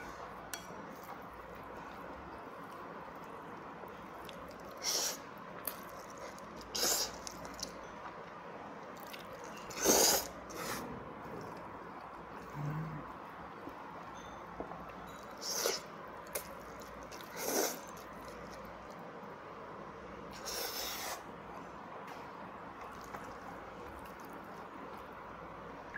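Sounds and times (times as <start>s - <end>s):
quiet chewing: 0.9s - 19.1s, 22.0s - 25.3s
person slurping noodles: 9.7s - 10.8s, 17.3s - 17.8s.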